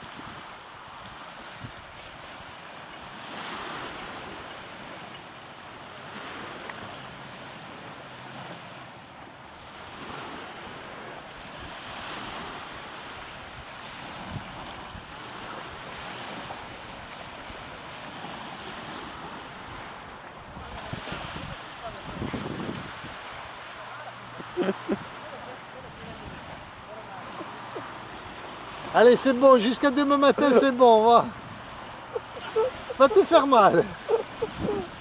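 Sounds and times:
wind on microphone: 0:00.0 - 0:05.1, 0:09.6 - 0:29.0, 0:30.4 - 0:35.0
small waves washing over rocks: 0:00.0 - 0:35.0.

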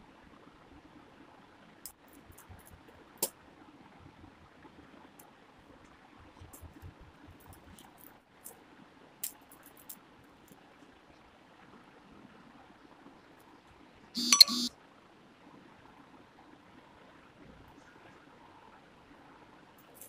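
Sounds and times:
high-pitched beep: 0:14.2 - 0:14.7.

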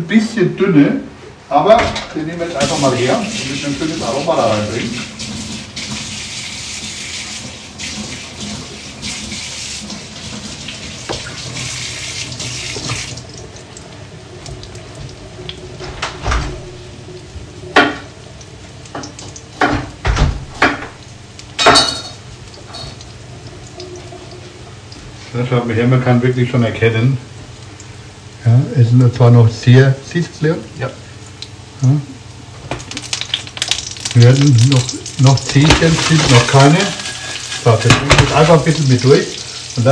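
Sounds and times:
tap running into steel sink: 0:11.1 - 0:11.4
kitchen things knocking and clattering: 0:17.8 - 0:18.1, 0:19.0 - 0:21.0, 0:21.6 - 0:23.0, 0:35.4 - 0:38.7.

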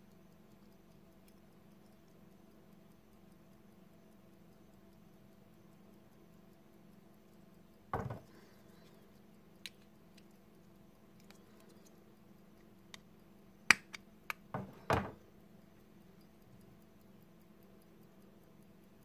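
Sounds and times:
light metal clicks: 0:06.9 - 0:19.0.

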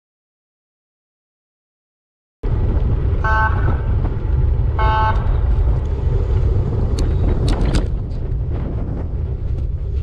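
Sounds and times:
wind buffeting microphone: 0:02.4 - 0:10.0.

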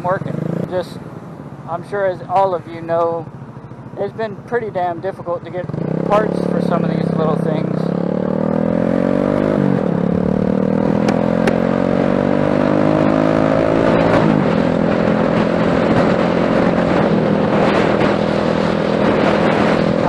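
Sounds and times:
motorcycle engine accelerating: 0:00.0 - 0:01.6, 0:02.2 - 0:20.0
wind noise on microphone: 0:08.6 - 0:20.0.

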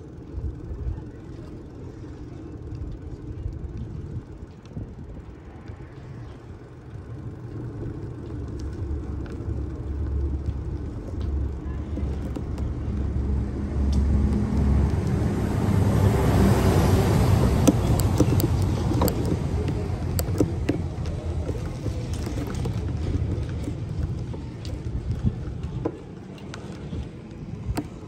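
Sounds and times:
road noise: 0:00.0 - 0:28.0
vehicle engine running: 0:00.0 - 0:28.0
sharp clicks and knocks: 0:17.4 - 0:26.7.

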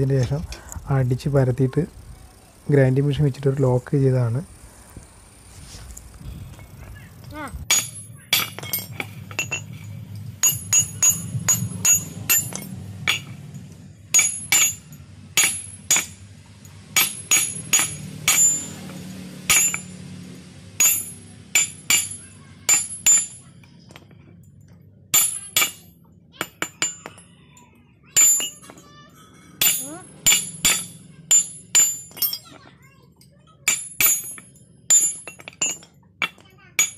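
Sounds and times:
hammer striking steel: 0:07.7 - 0:20.0, 0:20.8 - 0:24.1, 0:25.2 - 0:27.2, 0:28.1 - 0:32.7, 0:33.6 - 0:36.9.

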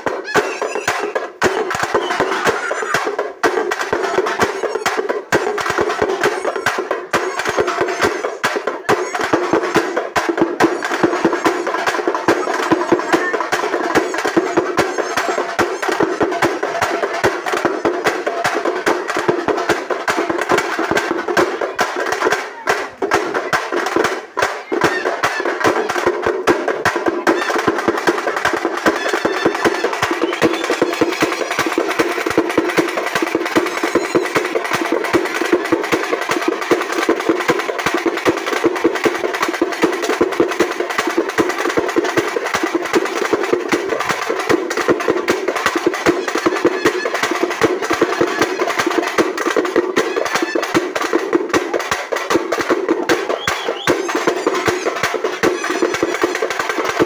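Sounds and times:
drums beaten rapidly: 0:00.0 - 0:57.0.

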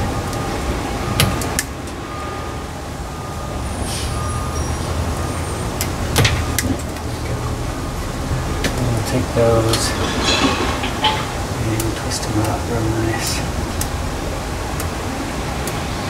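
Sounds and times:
low rumble: 0:09.2 - 0:12.1.

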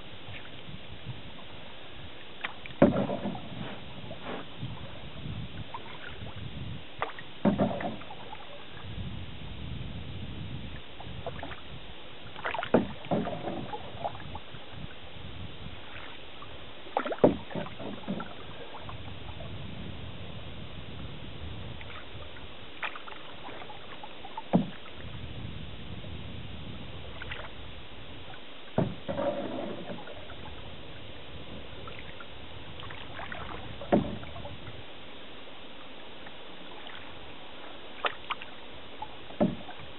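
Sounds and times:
paddle splashing in water: 0:00.0 - 0:00.7, 0:02.2 - 0:09.0, 0:10.7 - 0:15.0, 0:15.6 - 0:19.6, 0:21.6 - 0:34.9, 0:36.1 - 0:39.9
steady low hiss: 0:00.0 - 0:39.9.

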